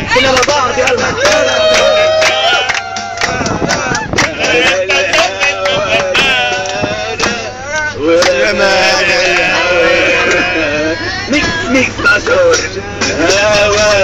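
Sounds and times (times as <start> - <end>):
men singing together: 0.1 - 14.0
hand-clapping: 0.3 - 7.4, 8.2 - 8.4.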